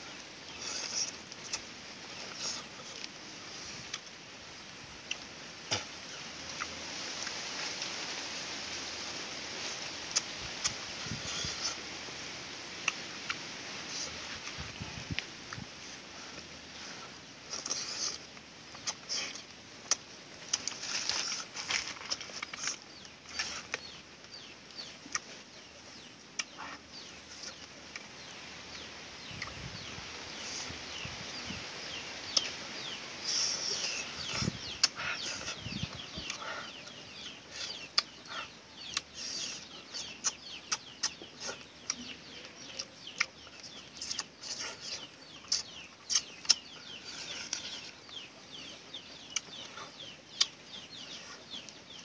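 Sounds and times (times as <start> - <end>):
birds chirping: 0.0 - 52.0
person eating: 0.5 - 4.1, 17.2 - 24.0.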